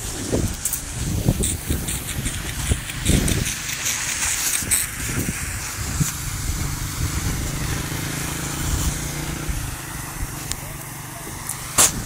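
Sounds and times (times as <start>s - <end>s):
road and wind noise: 0.0s - 12.0s
vehicle engine running: 0.9s - 12.0s.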